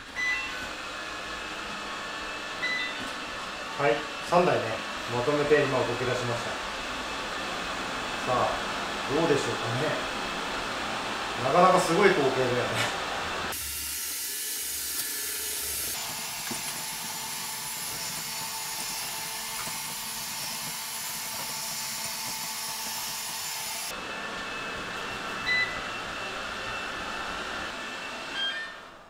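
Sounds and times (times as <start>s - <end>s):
robot vacuums running: 0.0s - 28.6s
short beeps: 0.2s - 0.6s, 2.6s - 3.0s.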